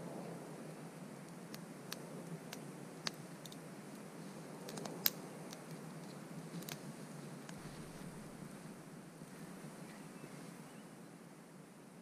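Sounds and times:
low fire hiss: 0.0s - 12.0s
campfire crackling and popping: 1.0s - 8.7s.

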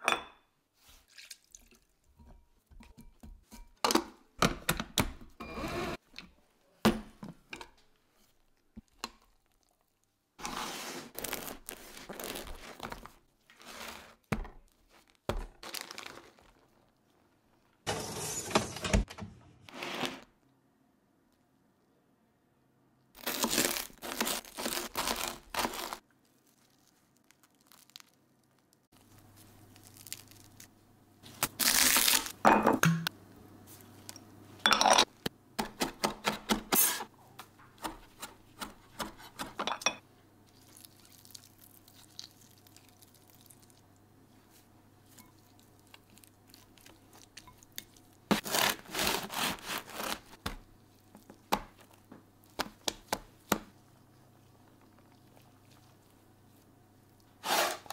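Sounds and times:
crunching and scraping: 10.4s - 18.8s, 23.2s - 32.4s
knife sawing through bread crust: 48.4s - 50.3s, 57.4s - 57.9s.

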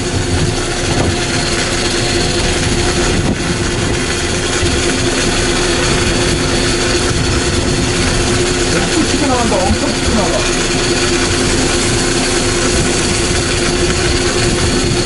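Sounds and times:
boat engines humming: 0.0s - 15.0s
water rushing: 0.0s - 15.0s.

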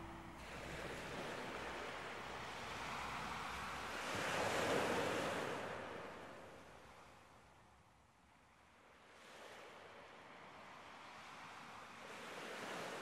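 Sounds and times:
ocean surf on shore: 0.0s - 6.5s.

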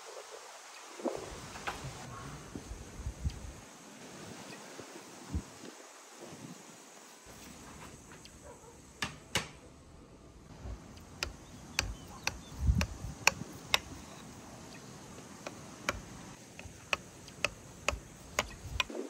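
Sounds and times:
sharp taps: 11.2s - 14.0s, 15.4s - 18.9s.

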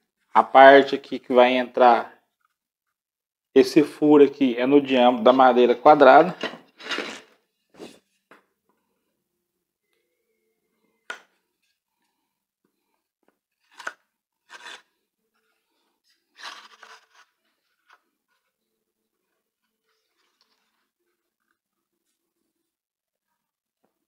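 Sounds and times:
wooden rod scraping in jig: 6.4s - 8.0s, 13.7s - 14.9s.

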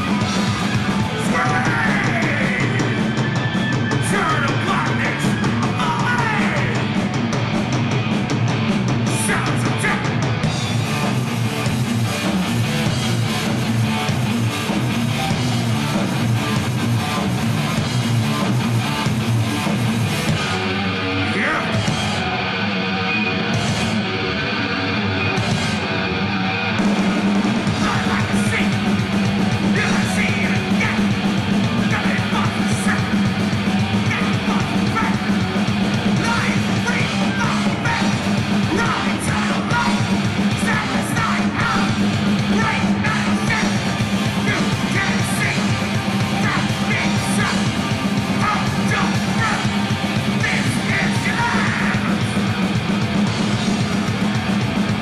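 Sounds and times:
drums and cymbals: 0.0s - 22.4s, 23.5s - 24.1s, 25.3s - 26.1s, 26.8s - 55.0s
bass guitar: 0.0s - 55.0s
distorted electric guitars: 0.0s - 55.0s
shouted vocal: 1.0s - 6.9s, 34.1s - 35.4s, 36.1s - 52.4s.

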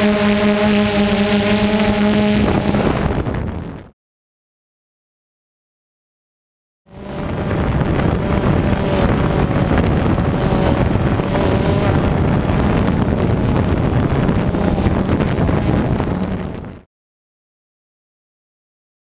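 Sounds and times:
wind on microphone: 0.0s - 3.9s, 6.9s - 16.9s.

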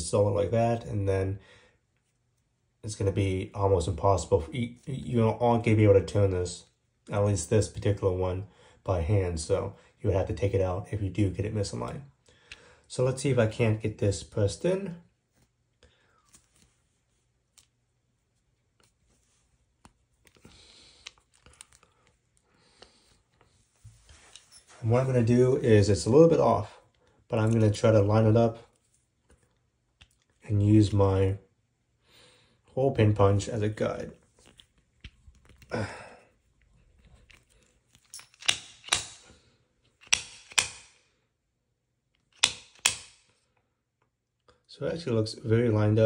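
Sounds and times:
sharp mechanical clicks: 40.0s - 41.0s, 42.4s - 43.2s.

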